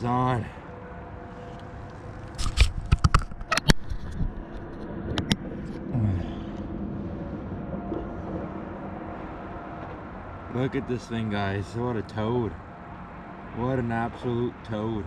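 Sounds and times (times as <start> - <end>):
microphone handling knocks and scrapes: 2.4 - 5.8.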